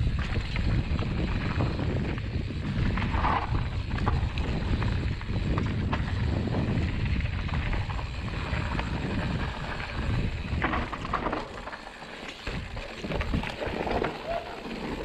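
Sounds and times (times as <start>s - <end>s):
wind buffeting microphone: 0.0s - 11.5s, 12.4s - 14.6s
bike rattling over bumps: 0.0s - 15.0s
tyres rolling over dirt: 0.0s - 15.0s.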